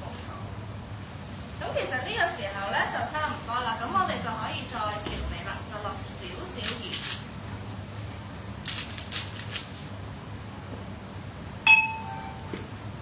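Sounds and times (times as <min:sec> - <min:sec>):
sharp clink: 0:11.7 - 0:12.5.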